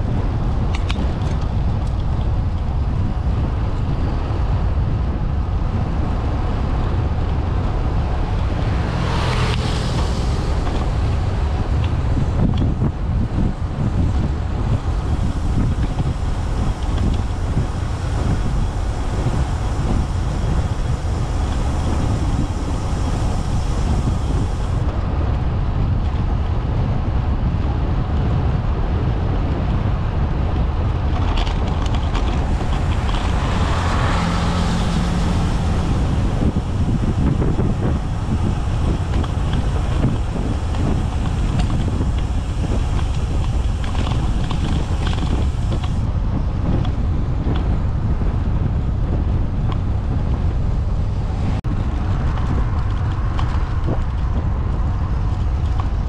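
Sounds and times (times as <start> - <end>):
wind buffeting microphone: 0.0 - 56.0.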